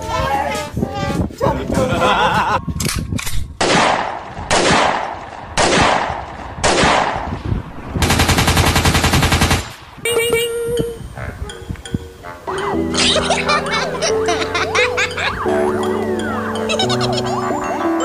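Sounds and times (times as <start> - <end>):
gunshots echoing: 3.6 - 7.3
automatic gunfire burst: 8.0 - 9.7.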